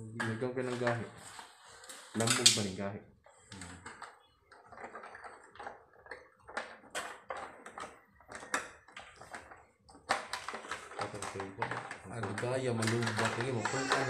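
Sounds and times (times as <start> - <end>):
light plastic clicks and knocks: 3.5 - 13.8.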